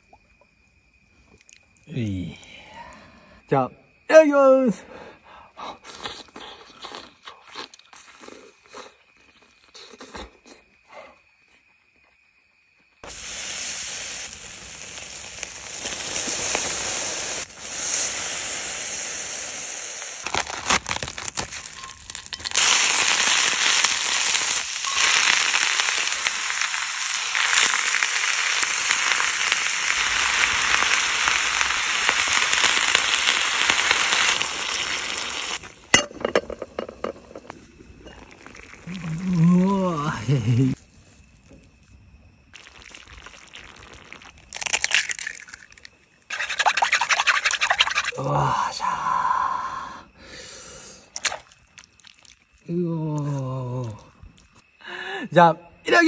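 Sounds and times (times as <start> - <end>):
food sizzling on a grill: 13.0 - 40.8.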